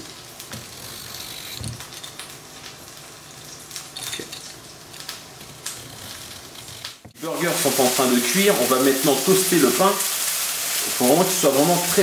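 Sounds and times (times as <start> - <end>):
patties sizzling in oil: 0.0 - 12.0.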